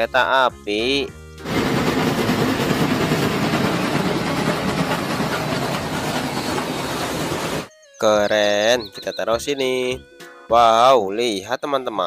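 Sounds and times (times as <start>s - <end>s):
steam train passing: 1.4s - 7.7s.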